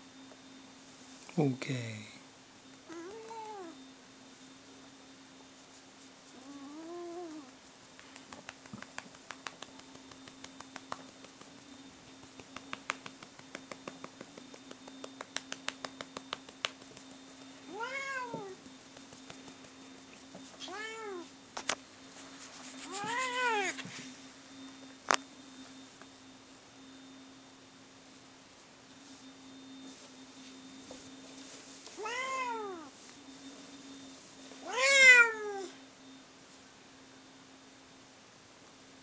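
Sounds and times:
cat meowing: 2.9s - 3.8s, 17.7s - 18.6s, 20.6s - 21.3s, 22.9s - 23.8s, 32.0s - 32.9s, 34.6s - 35.7s.

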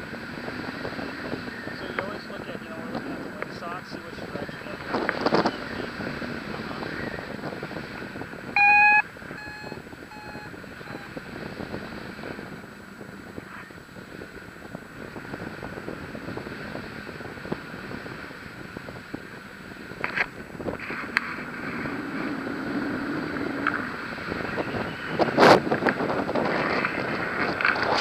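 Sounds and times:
wind on microphone: 0.0s - 28.0s
electronic beeps: 8.6s - 11.1s.

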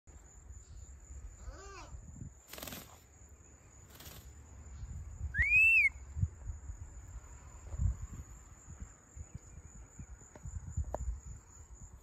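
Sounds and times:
rustling bursts: 2.4s - 3.0s
parrot whistle: 5.4s - 6.0s.

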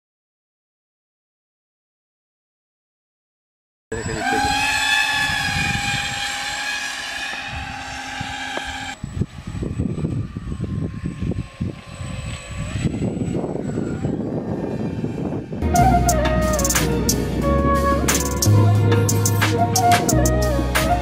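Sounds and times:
electric motor and propeller whining: 3.9s - 21.0s
gusty low rumbling: 4.0s - 6.6s, 7.4s - 21.0s.

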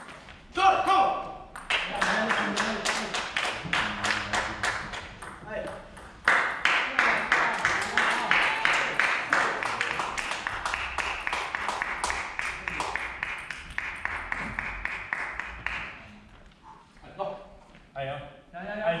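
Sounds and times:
spectators clapping in rhythm: 1.6s - 5.4s, 6.1s - 16.2s.

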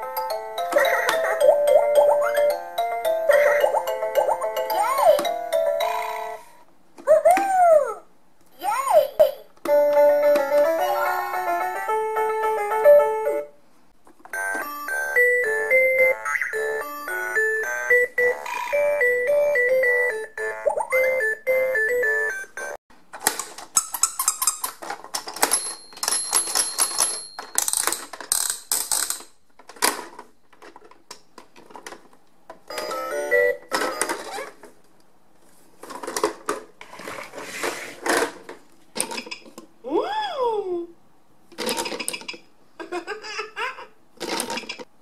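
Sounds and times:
electronic toy music: 0.0s - 6.5s, 9.7s - 13.5s, 14.3s - 22.8s, 32.7s - 34.2s
plastic toy clicking and snapping: 23.2s - 32.1s.

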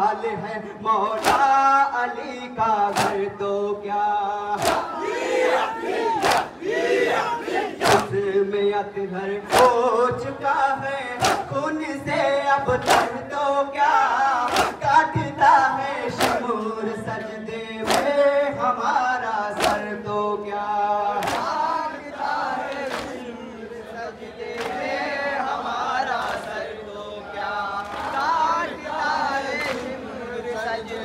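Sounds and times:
men chanting into microphones: 0.0s - 31.0s
hands slapping chests: 1.2s - 1.5s, 2.9s - 3.2s, 4.6s - 4.9s, 6.2s - 6.5s, 7.8s - 8.1s, 11.2s - 11.4s, 12.8s - 13.1s, 14.4s - 14.8s, 16.2s - 16.4s, 17.9s - 18.2s, 19.6s - 19.8s, 21.2s - 21.6s, 22.7s - 23.2s.

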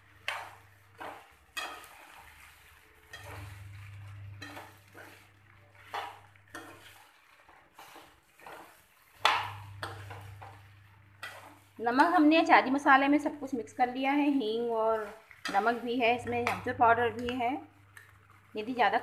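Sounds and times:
spatula scraping a frying pan: 0.0s - 12.6s, 14.5s - 17.3s.

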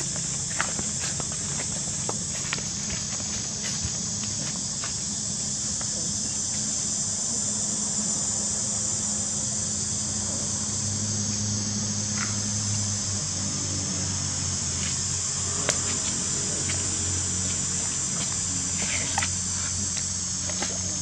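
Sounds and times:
insects buzzing: 0.0s - 21.0s.

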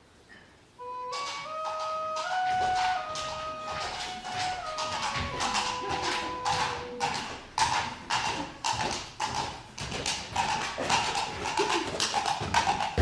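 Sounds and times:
clip-clop hoof clicks: 1.1s - 13.0s.

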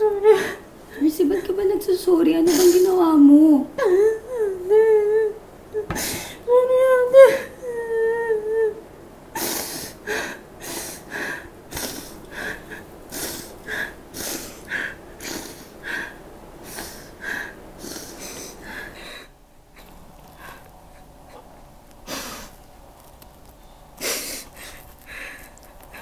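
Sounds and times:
woman sobbing and sniffling: 2.4s - 3.0s, 3.8s - 8.8s, 9.4s - 22.5s, 24.0s - 26.0s.

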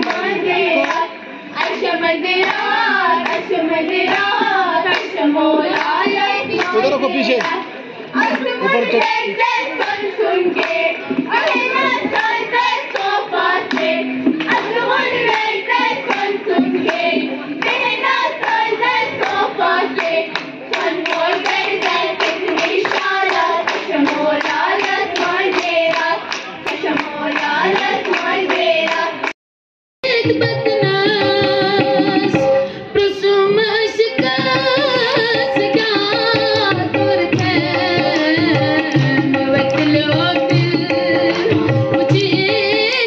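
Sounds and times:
hand claps: 0.0s - 7.6s, 11.4s - 29.4s, 37.3s - 42.3s
girls singing folk song: 0.0s - 29.3s, 30.0s - 43.0s.

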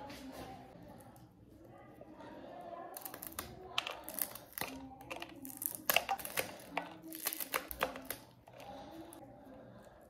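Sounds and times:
knife cutting chillies: 3.0s - 9.0s.

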